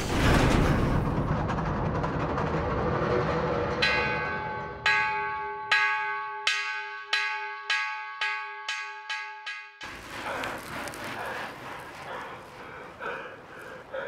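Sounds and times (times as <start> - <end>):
bell ringing: 3.8 - 9.9.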